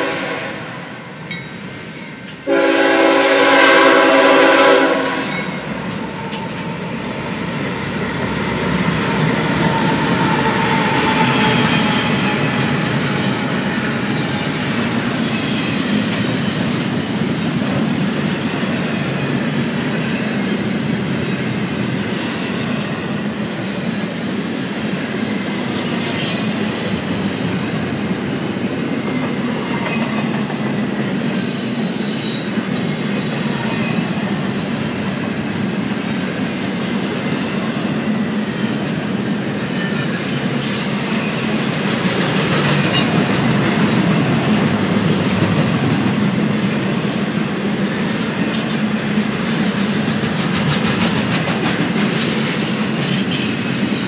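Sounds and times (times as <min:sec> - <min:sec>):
freight train rolling past: 0:00.0 - 0:54.0
high wheel squeal: 0:09.1 - 0:14.6, 0:22.2 - 0:24.9, 0:48.0 - 0:49.0, 0:52.0 - 0:54.0.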